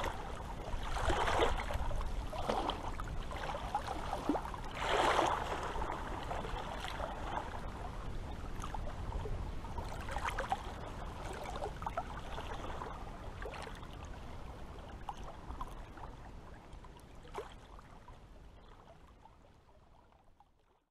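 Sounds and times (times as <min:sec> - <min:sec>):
water lapping and gurgling: 0:00.0 - 0:20.9.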